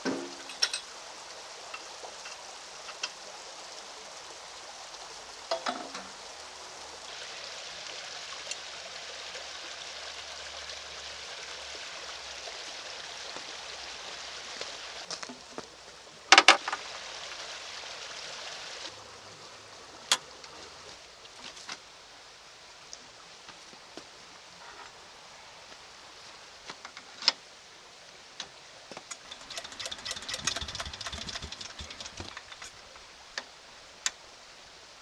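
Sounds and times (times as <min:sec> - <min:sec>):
steady hiss: 0:00.0 - 0:35.0
metallic clicks and clanks: 0:29.1 - 0:32.8.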